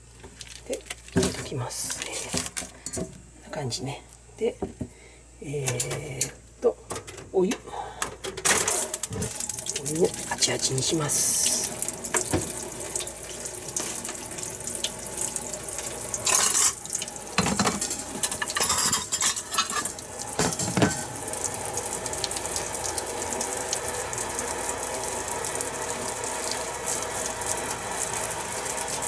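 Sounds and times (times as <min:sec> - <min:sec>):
tap water running into sink: 0:08.5 - 0:29.0.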